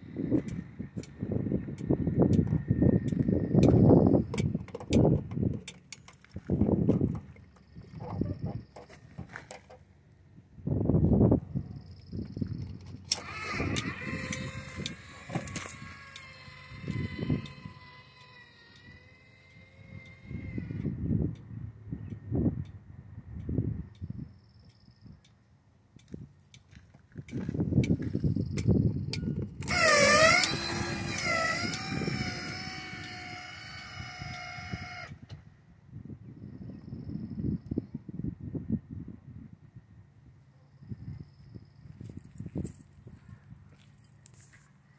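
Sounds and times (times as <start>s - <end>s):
actuator electric whine: 0.0s - 9.0s, 10.7s - 23.6s, 27.6s - 35.9s
sharp clicks and knocks: 1.8s - 9.9s
relay clicks: 13.1s - 20.9s, 29.6s - 35.2s.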